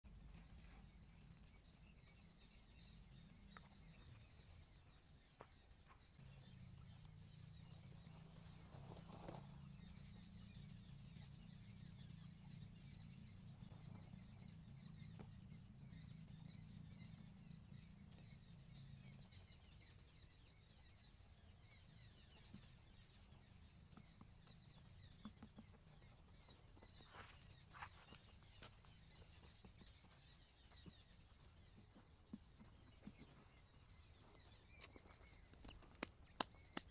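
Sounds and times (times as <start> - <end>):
low steady hum: 0.0 - 36.8
small birds chirping: 0.0 - 36.9.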